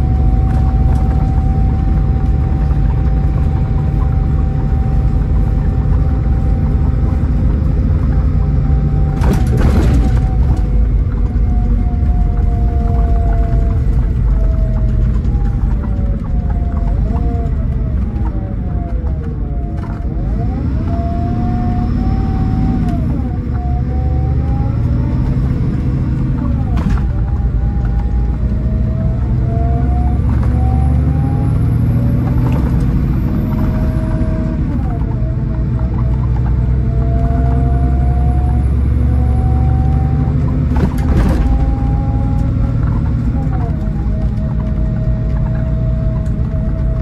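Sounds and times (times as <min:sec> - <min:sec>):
clicks and rattling: 0:00.0 - 0:20.4, 0:40.2 - 0:47.0
diesel engine drone: 0:00.0 - 0:47.0
driveline whine: 0:00.0 - 0:47.0
road noise: 0:00.0 - 0:47.0.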